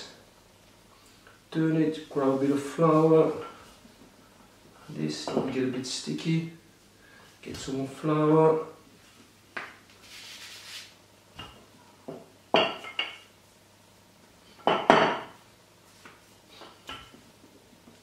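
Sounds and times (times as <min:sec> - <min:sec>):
hands rubbing: 0:10.0 - 0:10.9.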